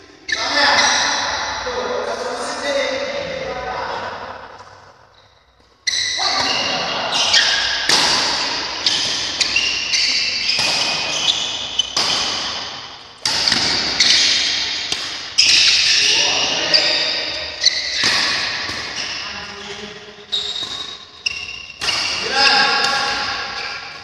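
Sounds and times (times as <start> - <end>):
rackets hitting shuttlecock: 6.0 - 19.3, 20.2 - 24.0.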